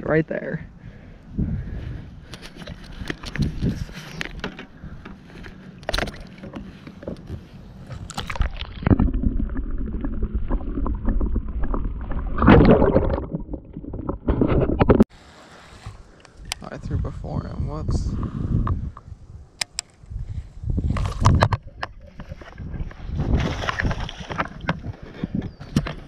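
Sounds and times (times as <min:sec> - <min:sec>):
water splashing and sloshing: 0:02.2 - 0:16.6, 0:20.9 - 0:26.0
muffled underwater churning and bubbling: 0:05.9 - 0:15.1.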